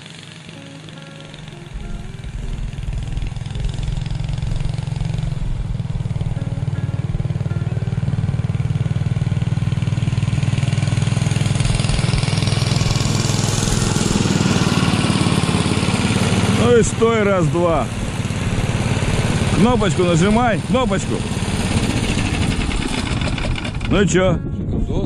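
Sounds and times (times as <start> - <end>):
small snow tug engine running: 0.0 - 24.5
sled hissing over snow: 11.0 - 23.8.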